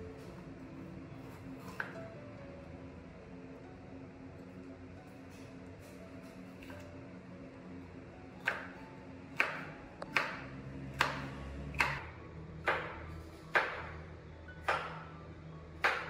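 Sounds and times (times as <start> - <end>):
kitchen knife chopping on board: 8.4 - 8.8, 9.4 - 12.0, 12.6 - 14.0, 14.6 - 15.0, 15.8 - 16.0.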